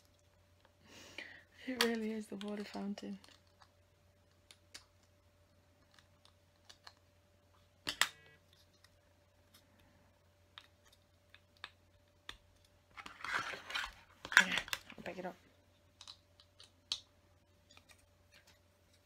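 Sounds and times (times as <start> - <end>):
plastic pieces clattering: 12.9 - 15.2.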